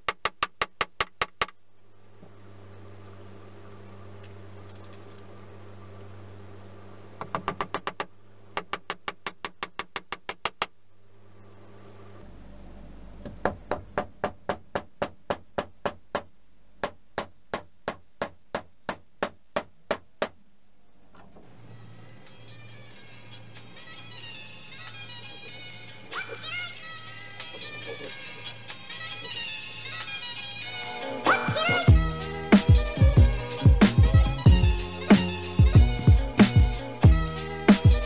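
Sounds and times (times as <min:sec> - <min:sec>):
hammer tapping nails: 0:07.2 - 0:10.7, 0:13.2 - 0:20.4.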